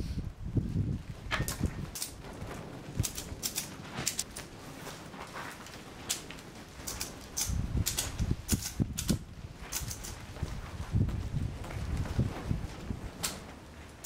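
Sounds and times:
ratchet strap clicking: 6.8s - 10.2s.

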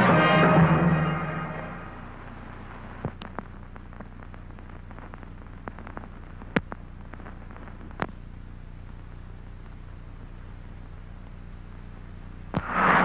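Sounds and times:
orchestral music: 0.0s - 2.3s
recording hiss and hum: 0.0s - 13.0s.

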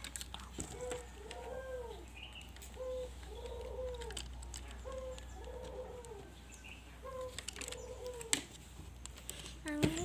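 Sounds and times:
plastic toy pieces clicking: 0.0s - 1.0s, 2.4s - 6.2s
bird calling: 0.6s - 8.5s.

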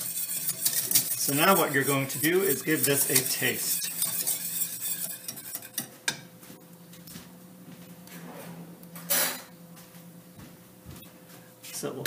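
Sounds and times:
utensils clattering: 0.0s - 5.9s
whisk scraping a saucepan: 0.0s - 5.9s.

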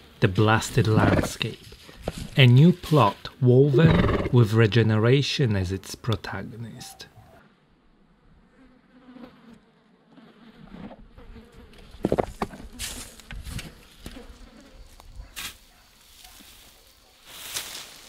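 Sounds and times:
flying insect buzzing: 8.4s - 18.0s
rustles and knocks: 12.0s - 14.2s.

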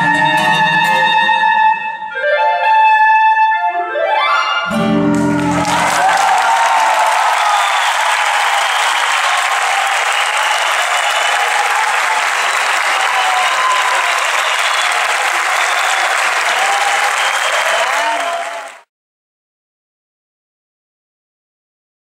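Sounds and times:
large audience applauding: 4.7s - 18.9s.

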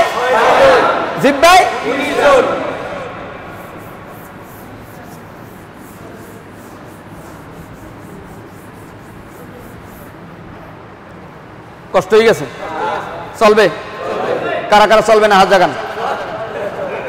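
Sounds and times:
eraser rubbing on blackboard: 3.4s - 10.7s.

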